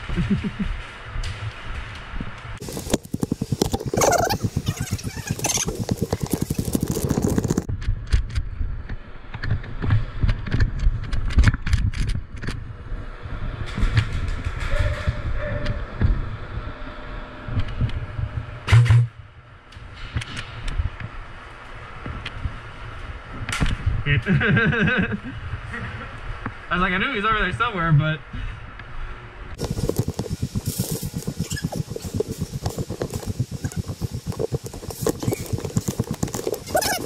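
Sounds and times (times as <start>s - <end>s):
low rumble: 0.0s - 24.2s, 28.2s - 37.0s
footsteps: 2.6s - 7.7s, 29.6s - 37.0s.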